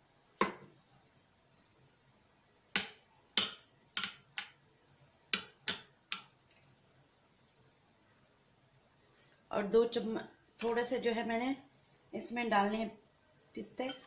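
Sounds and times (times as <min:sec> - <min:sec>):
steel spoon clinking on bowl: 0:13.8 - 0:14.0.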